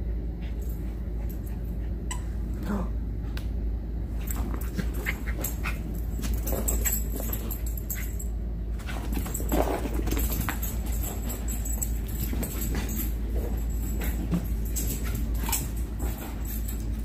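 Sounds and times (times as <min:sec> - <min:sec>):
steady low rumble: 0:00.0 - 0:17.0.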